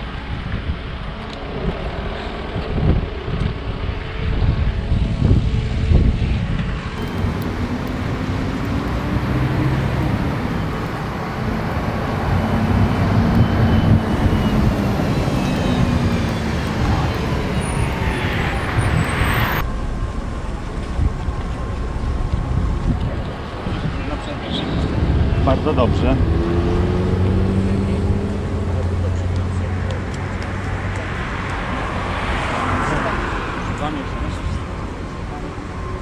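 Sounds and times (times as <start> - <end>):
cars passing: 0.0 - 36.0.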